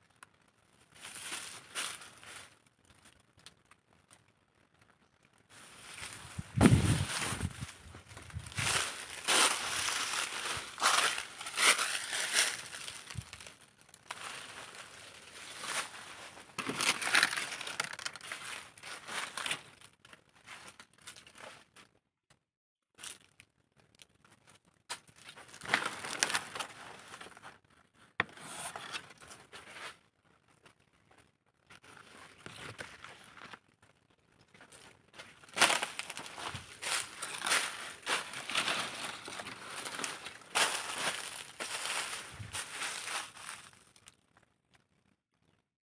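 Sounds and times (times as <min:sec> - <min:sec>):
dry leaves crackling: 0:00.9 - 0:03.8, 0:05.5 - 0:21.5, 0:25.1 - 0:27.5, 0:34.6 - 0:44.2.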